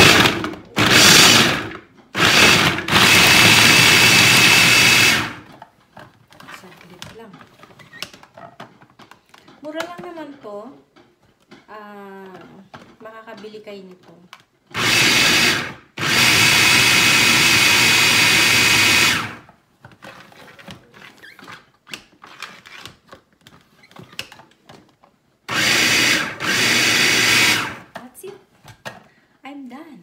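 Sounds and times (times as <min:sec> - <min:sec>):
food processor motor running: 0:00.0 - 0:05.5, 0:14.7 - 0:19.5, 0:25.5 - 0:27.9.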